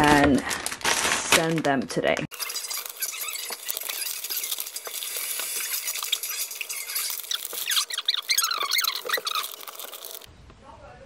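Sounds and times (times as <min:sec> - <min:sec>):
packaging rustling and crinkling: 0:00.0 - 0:10.3
short high squeaks: 0:02.3 - 0:10.3.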